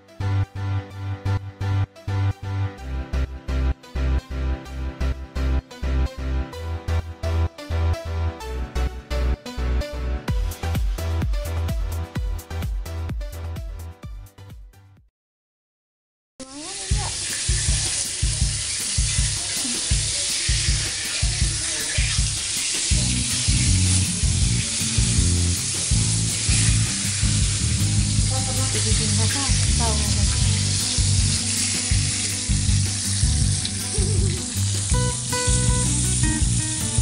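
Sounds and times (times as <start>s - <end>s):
background music with low beat: 0.1s - 15.0s, 17.5s - 37.0s
fish frying in hot oil: 16.4s - 37.0s.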